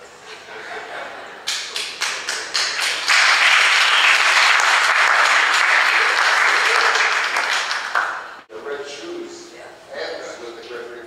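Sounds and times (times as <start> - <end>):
audience applause: 1.4 - 8.4.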